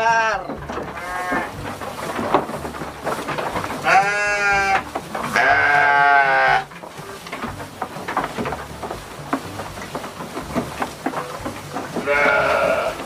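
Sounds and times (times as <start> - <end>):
sheep bleating: 0.0 - 1.7, 3.8 - 6.8, 11.8 - 13.0
knocks: 0.3 - 13.0
light rustling: 0.4 - 13.0.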